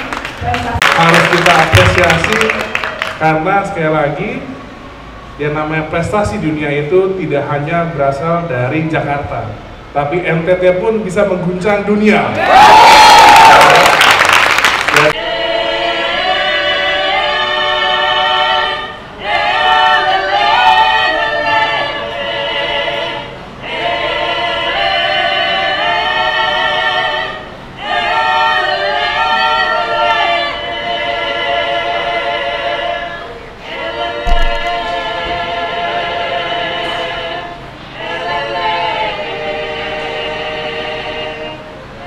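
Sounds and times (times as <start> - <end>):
choir singing sustained chords: 15.1 - 42.0.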